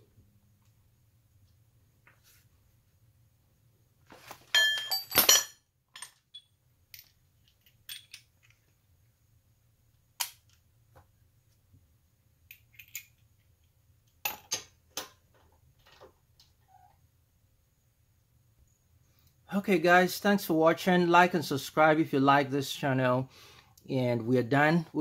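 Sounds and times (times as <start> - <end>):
ringing metal clank: 4.6 - 5.6.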